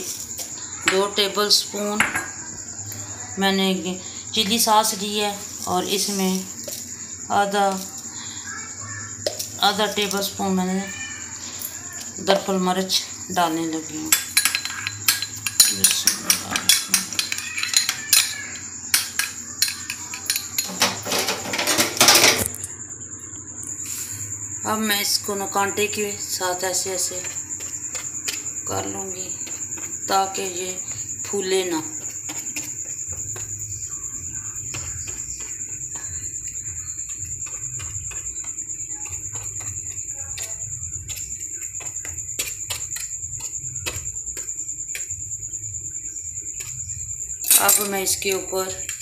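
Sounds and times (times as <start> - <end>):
cricket trilling: 0.0 - 49.0
metal spoon stirring in glass bowl: 14.1 - 20.9.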